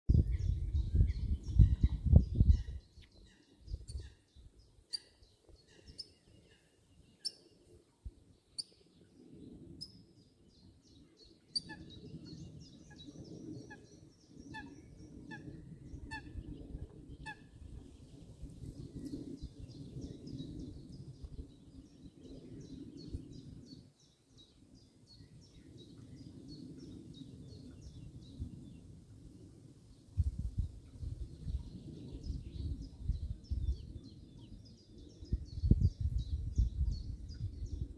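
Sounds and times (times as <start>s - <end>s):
soft steady low rumble: 30.2s - 37.9s.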